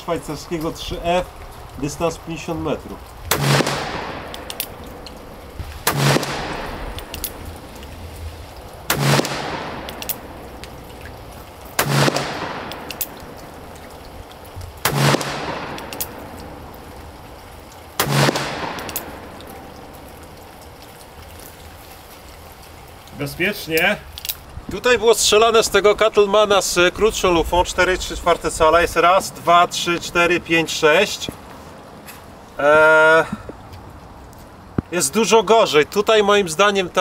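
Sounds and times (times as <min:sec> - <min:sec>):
revolver shots with echo: 0:08.9 - 0:10.3.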